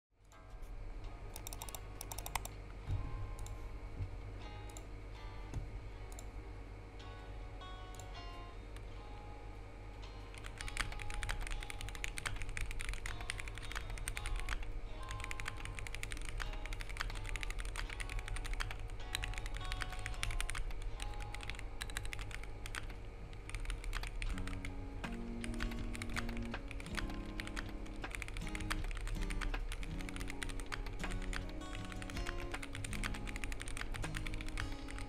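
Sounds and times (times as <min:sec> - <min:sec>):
background music: 0:00.3 - 0:22.9, 0:23.6 - 0:35.0
mechanical keyboard typing: 0:01.3 - 0:02.5, 0:10.3 - 0:35.0.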